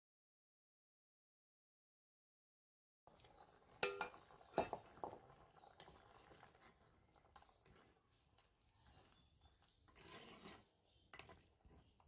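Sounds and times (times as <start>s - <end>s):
metal bowl clanking on clay pot: 3.8s - 4.8s.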